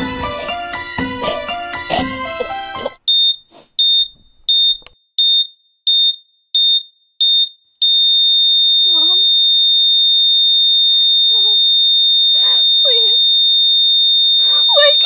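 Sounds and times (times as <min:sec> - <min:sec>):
patient monitor beeping: 0:01.8 - 0:05.4, 0:08.8 - 0:09.4, 0:11.0 - 0:11.7, 0:12.3 - 0:13.3, 0:14.2 - 0:15.0
continuous flatline tone: 0:08.8 - 0:09.3, 0:10.8 - 0:13.4, 0:14.0 - 0:15.0.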